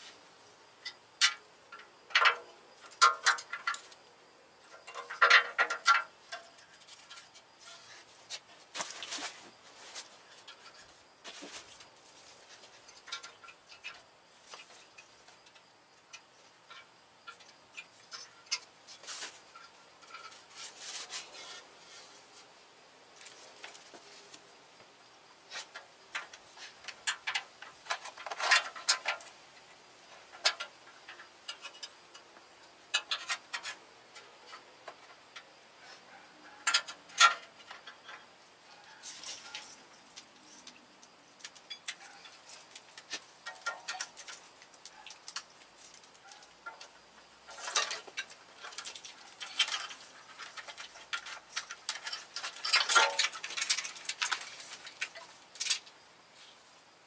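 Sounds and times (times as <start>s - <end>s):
cables clicking and rustling: 25.5s - 56.0s.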